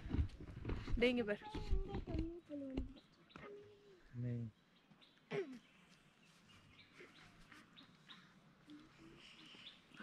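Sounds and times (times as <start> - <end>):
small bird chirps: 2.3 - 10.0.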